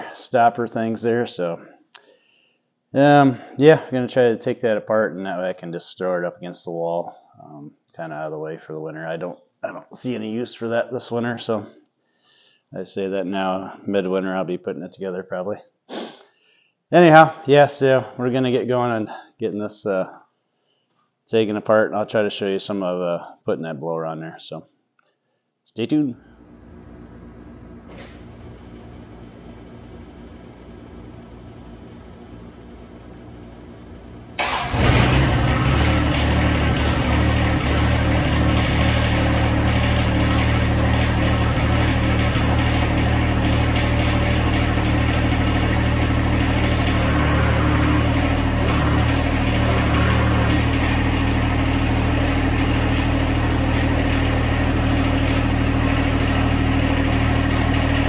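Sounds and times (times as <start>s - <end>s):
tractor diesel engine starting and idling: 26.4s - 58.0s.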